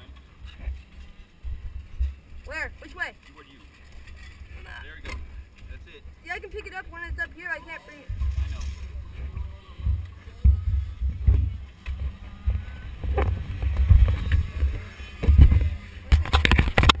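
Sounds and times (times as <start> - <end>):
wind buffeting microphone: 5.2 - 17.0.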